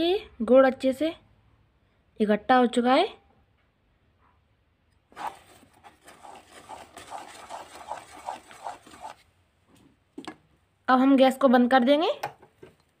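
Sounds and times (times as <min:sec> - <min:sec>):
spatula scraping sticky syrup: 0:05.1 - 0:09.3.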